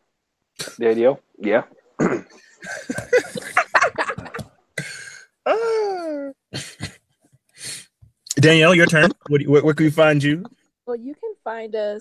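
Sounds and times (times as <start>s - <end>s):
breathy vocal bursts: 4.8s - 6.0s, 7.6s - 7.8s.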